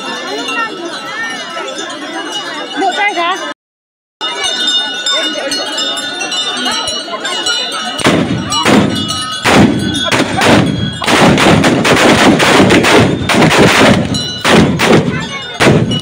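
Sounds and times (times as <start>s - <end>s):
volley of gunshots: 8.0s - 16.0s.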